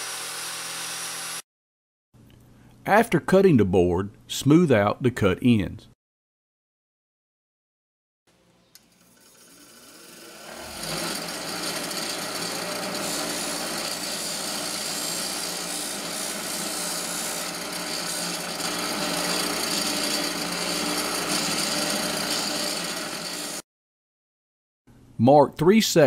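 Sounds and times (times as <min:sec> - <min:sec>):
bench grinder grinding plastic: 0:08.8 - 0:23.6.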